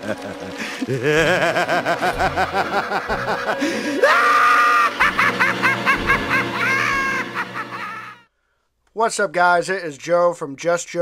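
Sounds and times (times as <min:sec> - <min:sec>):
man cackling laugh: 0:00.0 - 0:08.2.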